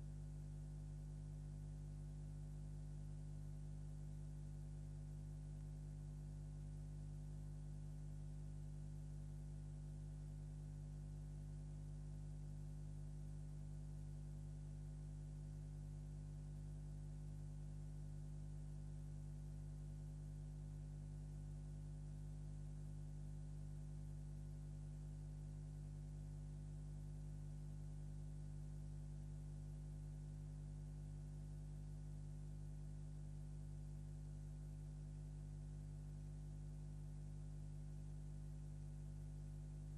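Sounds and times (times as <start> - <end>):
electrical mains hum: 0.0 - 0.4.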